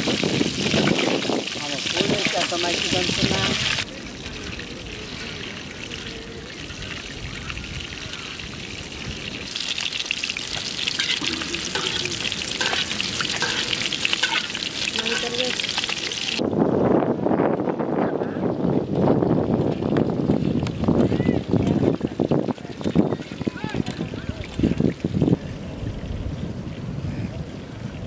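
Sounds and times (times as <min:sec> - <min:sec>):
fish deep-frying in sizzling oil: 0:00.0 - 0:16.4.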